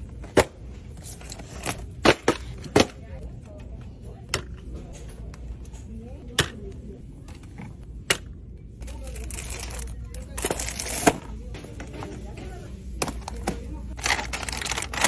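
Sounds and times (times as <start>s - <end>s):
plastic wrapping crinkling: 14.0s - 15.0s.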